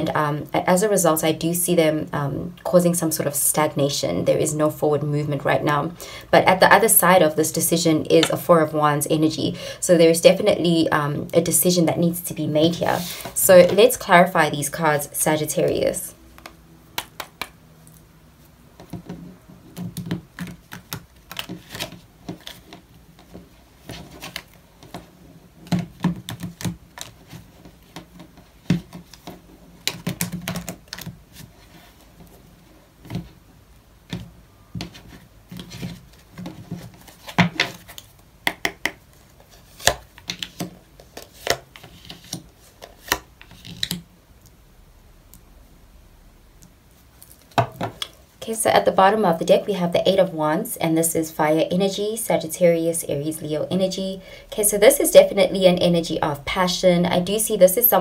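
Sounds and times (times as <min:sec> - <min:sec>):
cards being shuffled: 0:19.8 - 0:25.1, 0:34.8 - 0:38.2, 0:39.1 - 0:44.0.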